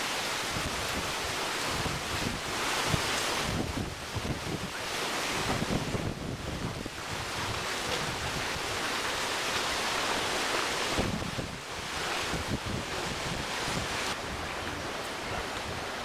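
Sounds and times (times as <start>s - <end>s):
wind blowing over microphone: 0.0s - 16.0s.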